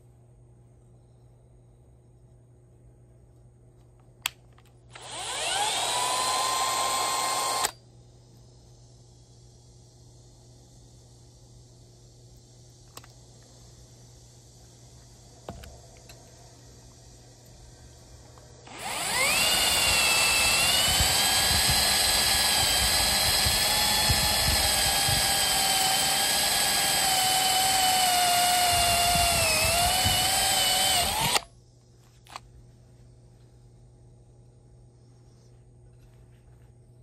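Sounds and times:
drill drilling into metal: 4.9 - 7.8, 18.7 - 31.5.

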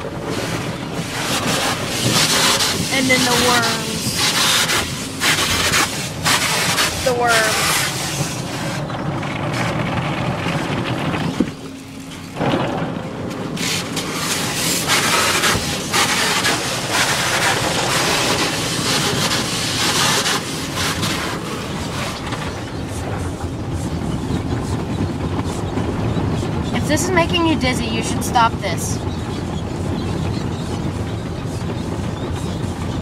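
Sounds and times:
water spray rushing: 0.0 - 8.8, 13.5 - 22.2
cloth strips sweeping over car: 0.3 - 8.8, 13.6 - 22.2.

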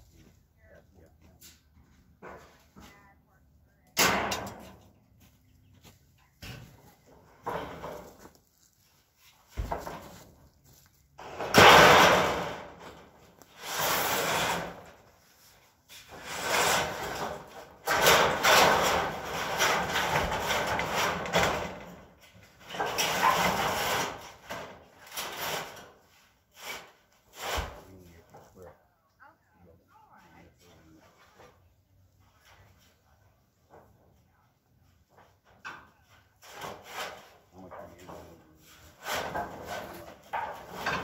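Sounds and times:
metal roofing sheets scraping: 6.4 - 10.4, 11.2 - 28.6, 34.8 - 41.0.

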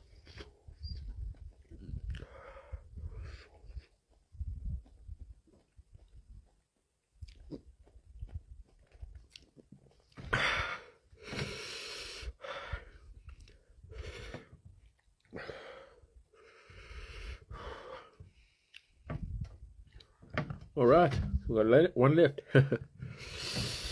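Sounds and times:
man breathing hard: 2.0 - 3.9, 10.3 - 14.6, 15.3 - 18.7, 23.0 - 23.9
faint chewing: 7.2 - 7.7, 8.7 - 10.2, 14.8 - 15.4, 18.6 - 19.0, 19.8 - 20.2.

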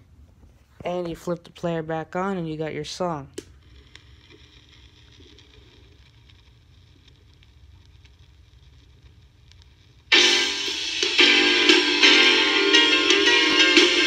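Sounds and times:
vinyl crackle and ticks: 0.3 - 14.0
song playing from record: 10.1 - 14.0.

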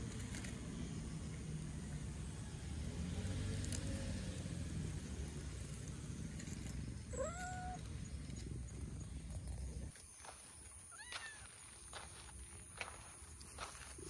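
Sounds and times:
cat meowing: 7.1 - 7.8.

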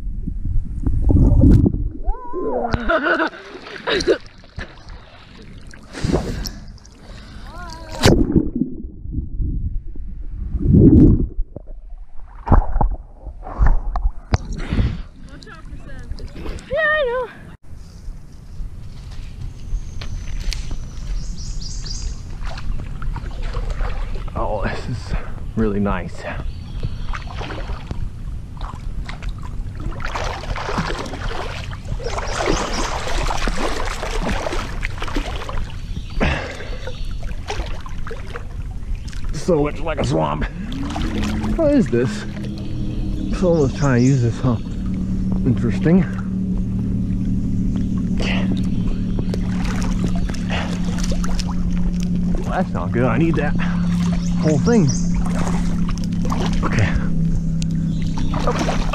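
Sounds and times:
muffled underwater rumbling: 0.0 - 17.6, 19.8 - 58.9
water splashes and drips: 2.8 - 8.8, 22.3 - 24.9, 27.1 - 28.0, 28.6 - 42.7, 48.2 - 57.0, 58.0 - 58.9.

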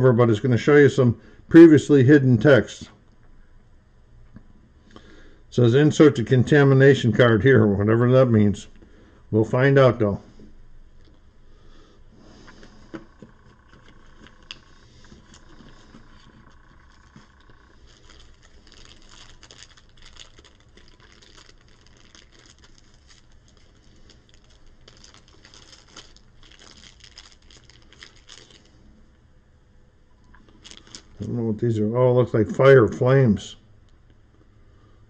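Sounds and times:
plastic bag crinkling: 12.4 - 29.0, 30.3 - 31.3.

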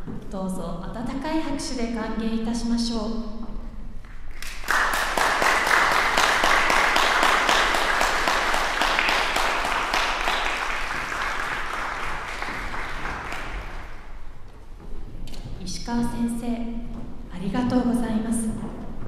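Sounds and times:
audience applauding: 4.3 - 14.2.

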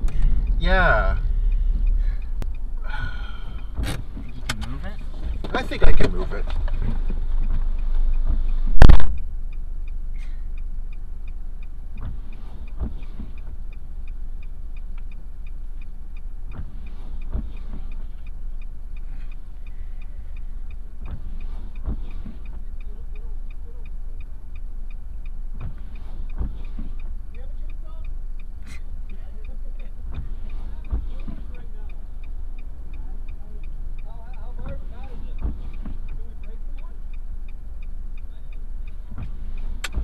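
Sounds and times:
car door shutting: 0.0 - 9.2, 12.0 - 13.6, 16.5 - 18.4, 21.0 - 22.7, 25.6 - 27.2, 34.6 - 37.0, 39.1 - 40.0
car engine idling: 0.0 - 40.0
fast regular light ticking: 0.0 - 40.0.

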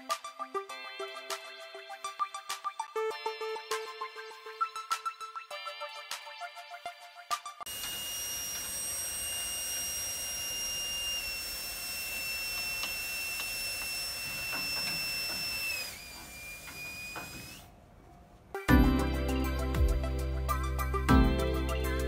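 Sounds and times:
electric train equipment whine: 7.7 - 17.7.

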